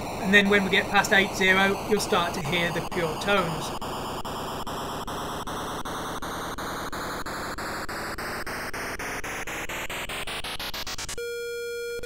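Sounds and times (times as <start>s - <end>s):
harsh static-like beeper noise: 0.0s - 9.7s.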